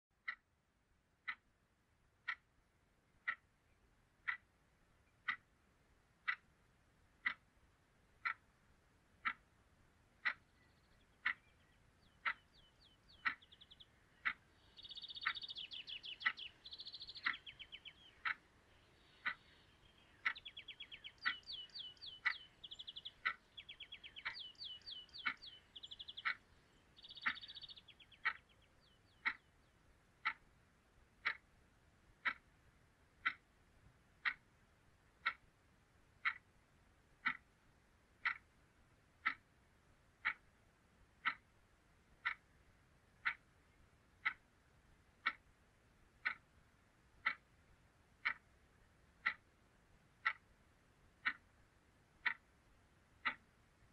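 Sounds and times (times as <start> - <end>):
clock ticking: 0.2 - 0.5, 1.2 - 1.5, 2.2 - 2.6, 3.2 - 3.5, 4.1 - 10.4, 11.1 - 18.4, 19.1 - 19.5, 20.1 - 26.4, 27.0 - 29.5, 30.1 - 33.5, 34.1 - 37.6, 38.2 - 43.6, 44.2 - 45.6, 46.2 - 49.6, 50.2 - 53.9
high chirping trills: 10.5 - 29.6.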